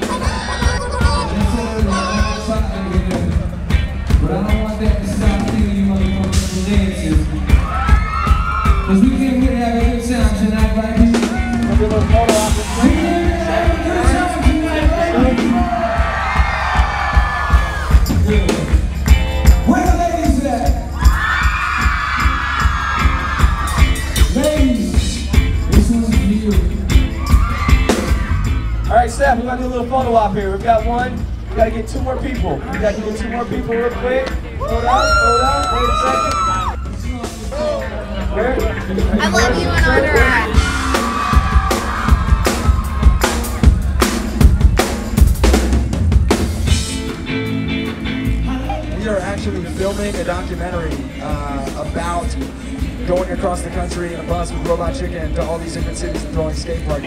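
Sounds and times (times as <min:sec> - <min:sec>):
person singing: 0:00.0 - 0:03.1
live band playing: 0:00.0 - 0:57.0.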